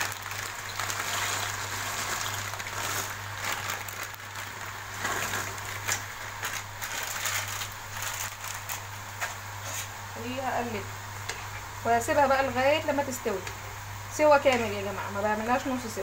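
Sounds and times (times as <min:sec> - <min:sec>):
dry pasta rattling: 0:00.0 - 0:08.9
water boiling: 0:00.0 - 0:16.0.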